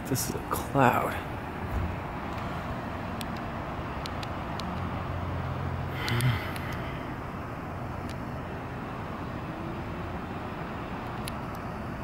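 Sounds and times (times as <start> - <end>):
faint high ticks: 6.0 - 6.8.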